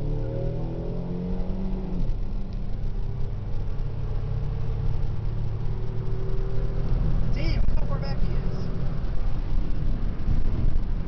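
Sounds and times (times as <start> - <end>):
car engine at full throttle: 0.0 - 11.0.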